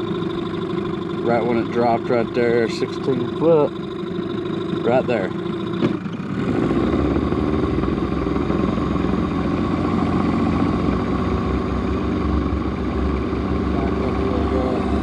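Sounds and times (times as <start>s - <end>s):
boat motor running: 0.0s - 15.0s.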